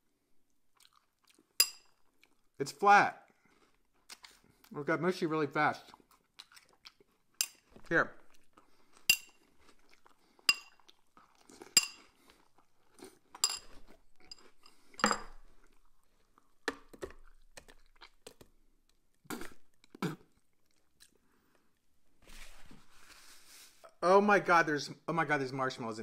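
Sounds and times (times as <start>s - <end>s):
chewing: 0.7s - 2.6s, 3.3s - 4.8s, 5.8s - 21.8s
spoon clinking ceramic bowl: 1.6s - 1.9s, 9.1s - 9.4s, 10.5s - 10.8s, 11.8s - 12.0s, 13.4s - 15.4s.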